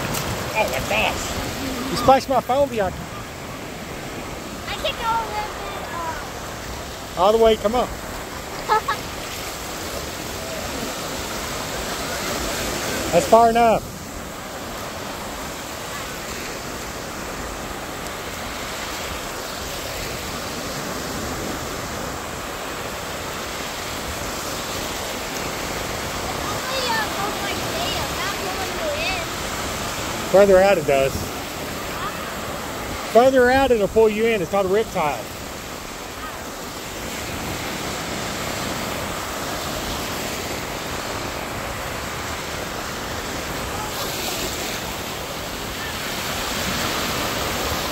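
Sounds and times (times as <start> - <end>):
surf waves breaking: 0.0 - 47.9.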